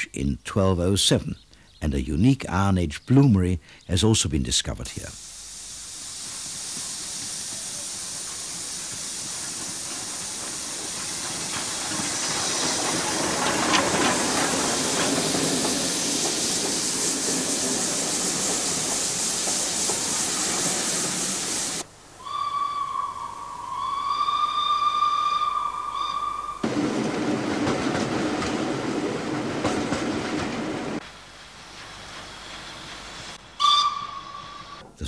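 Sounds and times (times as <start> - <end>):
steam hissing: 5.0 - 34.8
steam whistle blowing: 22.2 - 26.6, 33.6 - 34.8.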